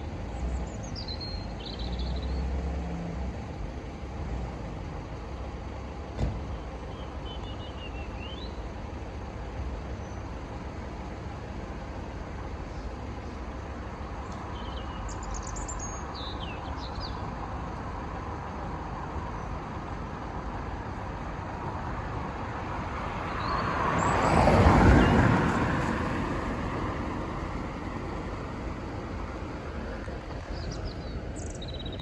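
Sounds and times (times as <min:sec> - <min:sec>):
low traffic rumble: 0:00.0 - 0:32.0
vehicle passing close by: 0:20.6 - 0:32.0.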